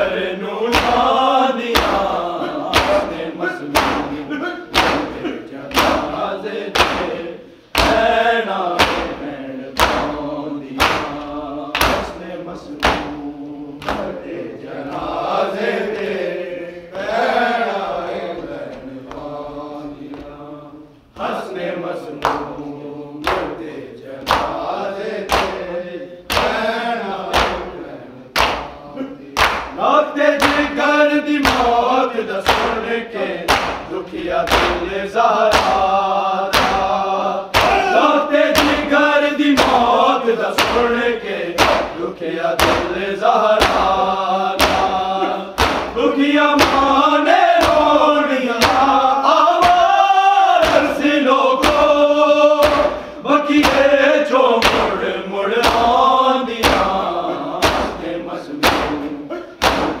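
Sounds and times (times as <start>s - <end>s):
voices chanting in chorus: 0.0s - 60.0s
beat of sharp strikes: 1.8s - 7.2s, 8.8s - 12.2s, 12.8s - 14.1s, 33.5s - 34.9s, 35.5s - 35.9s, 36.5s - 38.9s, 41.6s - 42.0s, 42.6s - 43.0s, 43.6s - 44.0s, 44.6s - 47.0s, 50.6s - 51.0s, 52.6s - 53.9s, 56.6s - 60.0s.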